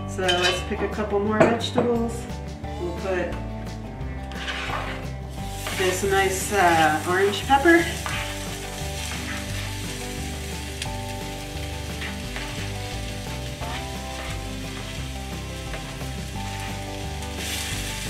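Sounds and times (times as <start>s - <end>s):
pepper sizzling in hot oil: 4.3s - 18.0s.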